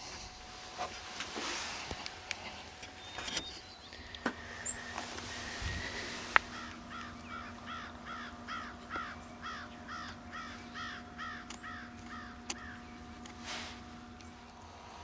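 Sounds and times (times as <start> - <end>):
animal calling harsh notes: 4.6 - 12.9.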